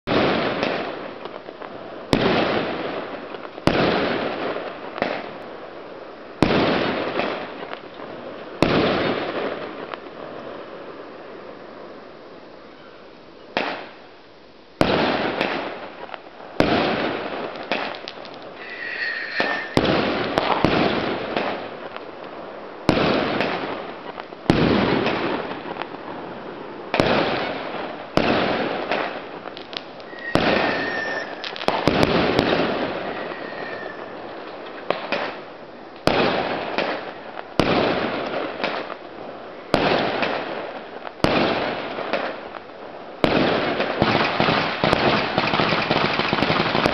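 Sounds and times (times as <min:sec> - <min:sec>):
fireworks bangs: 0:00.1 - 0:01.4, 0:02.0 - 0:05.4, 0:06.4 - 0:11.0, 0:13.6 - 0:14.0, 0:14.8 - 0:39.0, 0:39.6 - 0:42.5, 0:43.2 - 0:46.9
firework whistle: 0:18.5 - 0:20.9, 0:30.0 - 0:34.6.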